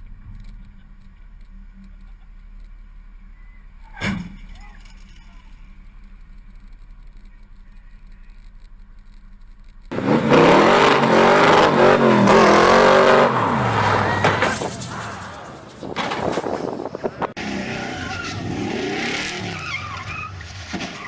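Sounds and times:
low traffic rumble: 0.0s - 21.0s
car engine revving hard: 9.9s - 14.4s, 17.4s - 19.6s.

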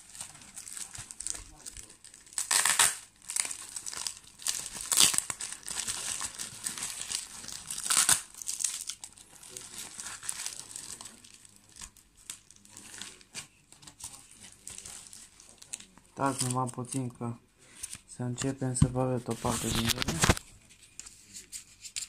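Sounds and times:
packaging torn and crumpled: 0.0s - 13.4s, 19.4s - 20.4s.

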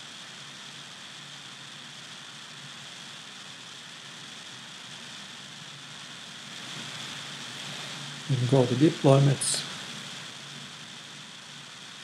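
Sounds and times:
steady hiss: 0.0s - 12.0s
faint low hum: 6.4s - 10.8s.

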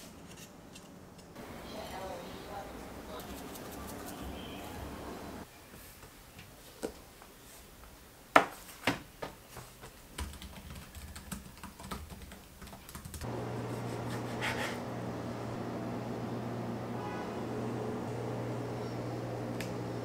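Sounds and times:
steady low hum: 13.2s - 20.0s.

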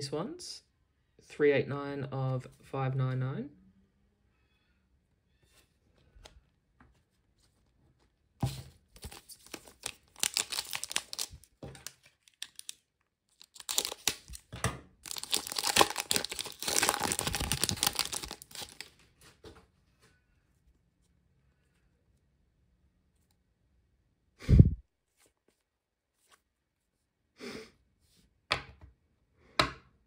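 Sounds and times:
foil wrapper crinkling: 8.9s - 19.0s.

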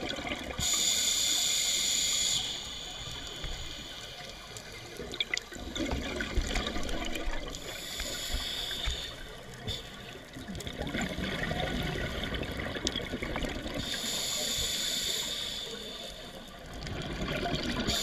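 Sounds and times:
exhaled bubbles gurgling: 0.0s - 0.9s, 1.5s - 15.6s, 16.2s - 18.0s
scuba regulator breathing: 0.6s - 5.0s, 7.5s - 10.3s, 13.8s - 16.6s
faint clicks: 2.2s - 10.8s.

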